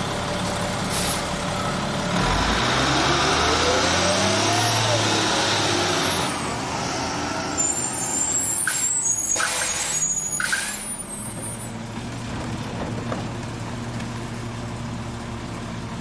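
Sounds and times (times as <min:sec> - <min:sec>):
diesel engine idling: 0:00.0 - 0:05.0
air brakes hissing: 0:00.8 - 0:01.4, 0:07.6 - 0:11.7
brake squeal: 0:00.8 - 0:06.6, 0:07.3 - 0:11.9.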